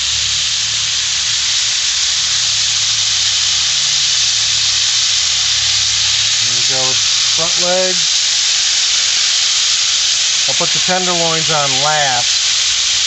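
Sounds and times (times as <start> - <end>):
meat sizzling in oil: 0.0 - 13.0.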